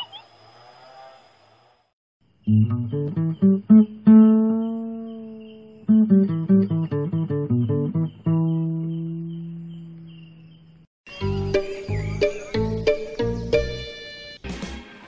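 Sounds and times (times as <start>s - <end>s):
acoustic guitar plucked notes: 2.5s - 10.0s.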